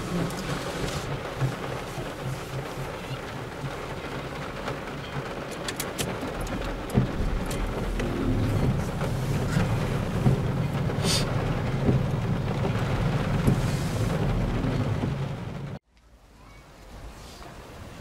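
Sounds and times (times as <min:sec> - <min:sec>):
heavy rain on car roof: 0:00.0 - 0:15.8
low rumble: 0:06.2 - 0:15.8.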